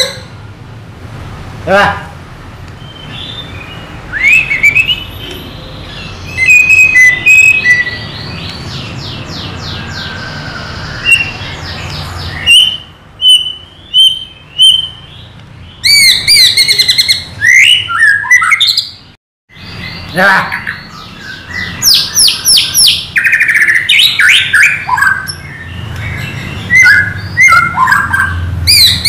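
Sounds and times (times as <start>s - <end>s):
bird singing whistles and trills: 2.8s - 29.0s.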